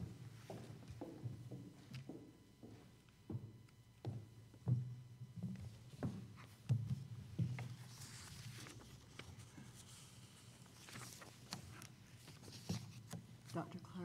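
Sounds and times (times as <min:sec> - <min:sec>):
paper rustling: 0:07.6 - 0:13.2.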